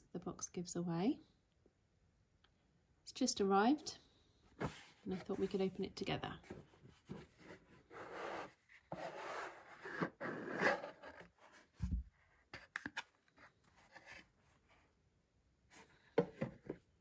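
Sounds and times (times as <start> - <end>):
cardboard rubbing and scraping: 6.6 - 12.0.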